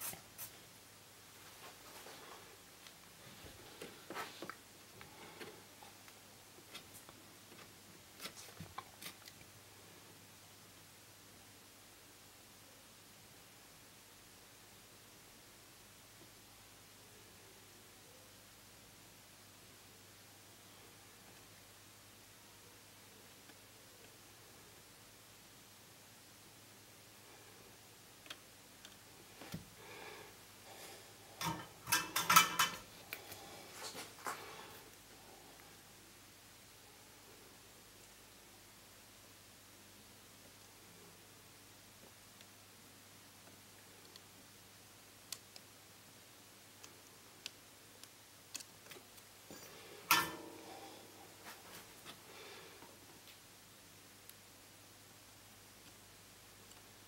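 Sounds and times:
small tools clicking and tapping: 31.4 - 33.3.

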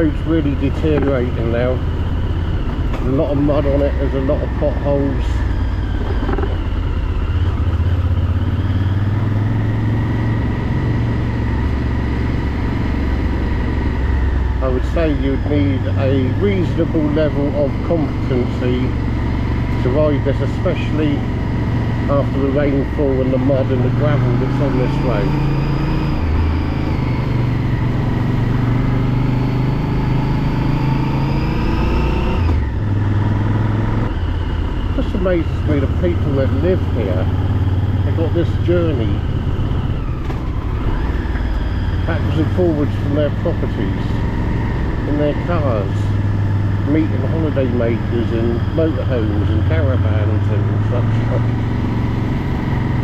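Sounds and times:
motorcycle engine running: 0.0 - 53.0.

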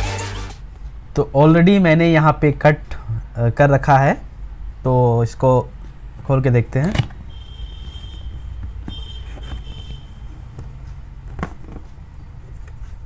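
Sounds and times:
steady low hum: 0.6 - 13.0
cardboard rubbing and handling: 7.8 - 11.9.

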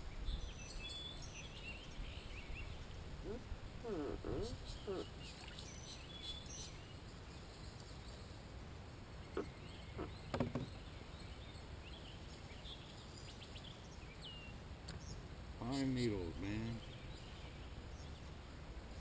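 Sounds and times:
faint bird chirps: 0.1 - 8.4, 9.2 - 18.4
light knocks: 10.3 - 10.7.

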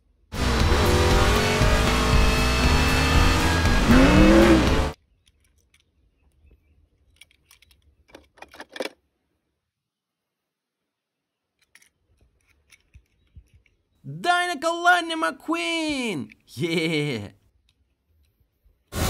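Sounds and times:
car engine revving: 0.3 - 5.0.

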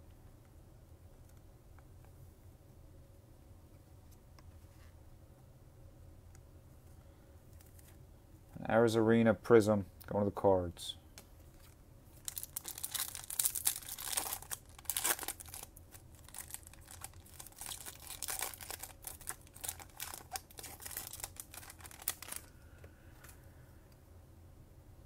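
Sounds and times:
foil wrapper crinkling and tearing: 12.2 - 22.5.

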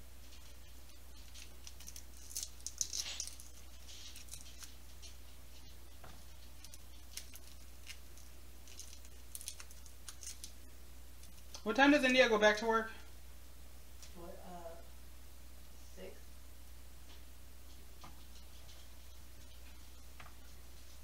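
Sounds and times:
garlic skins crackling: 0.3 - 11.6.

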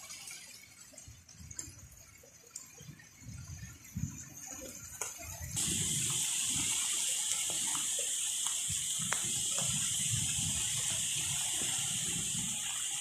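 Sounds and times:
wind buffeting microphone: 2.8 - 7.7, 8.6 - 13.0
heavy rain hissing: 5.6 - 13.0.

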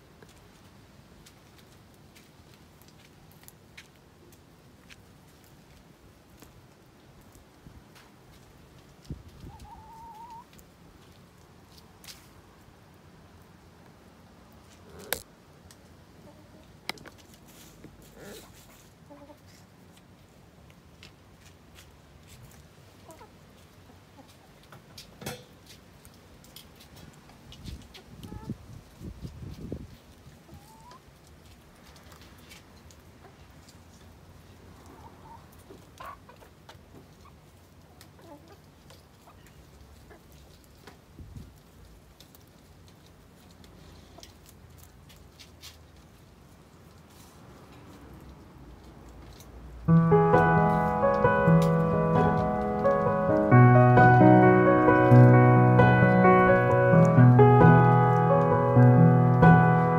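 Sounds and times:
hens clucking softly: 9.3 - 10.6, 30.4 - 31.0.

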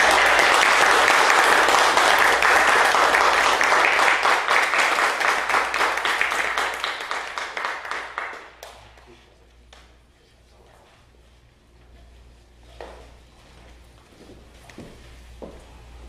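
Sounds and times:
congregation applauding: 0.0 - 9.0.

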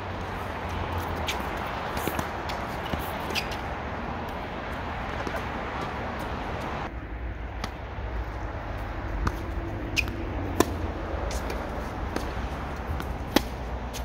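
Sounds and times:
steady rushing noise: 0.0 - 14.0
tennis ball struck by racket: 1.0 - 3.7, 5.1 - 5.9, 9.2 - 14.0.

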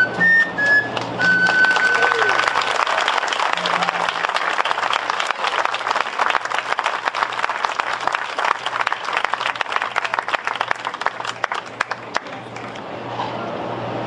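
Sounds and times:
audience applauding: 0.4 - 12.8.

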